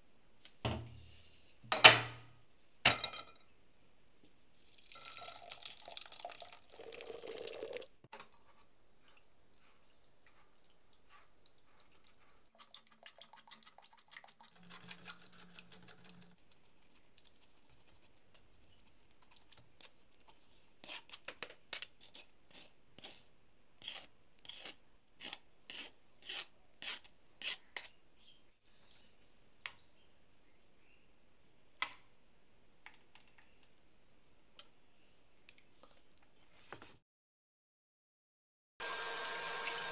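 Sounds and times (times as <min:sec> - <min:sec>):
puree poured into a sieve: 0:04.6 - 0:16.4, 0:38.8 - 0:39.9
metal spoon scraping a mesh sieve: 0:08.2 - 0:16.4.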